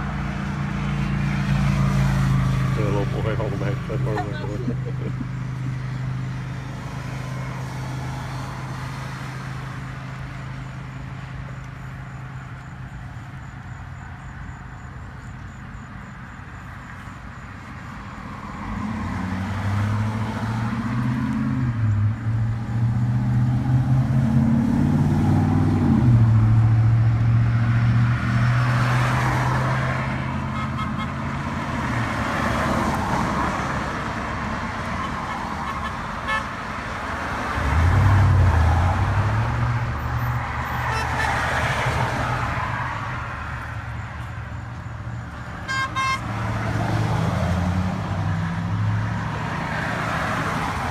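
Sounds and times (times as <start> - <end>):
vehicles passing with tyre rush: 0.0 - 50.9
car horns honking: 30.4 - 31.3, 34.9 - 36.6, 40.6 - 41.9, 45.6 - 46.5.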